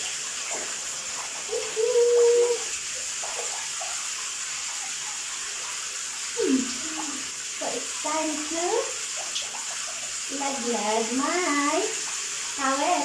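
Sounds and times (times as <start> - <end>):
shower water running: 0.0 - 13.0
woman's voice humming: 6.4 - 7.2.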